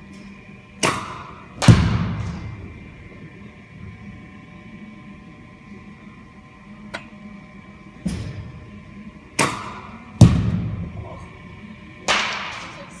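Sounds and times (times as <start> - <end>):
faint steady hum: 0.0 - 13.0
bat hitting ball: 0.8 - 3.1, 9.3 - 11.0, 12.0 - 12.9.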